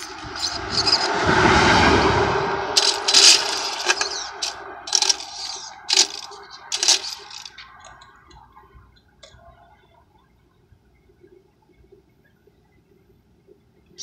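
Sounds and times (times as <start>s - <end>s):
rc car motor whirring bursts: 2.8s - 7.5s.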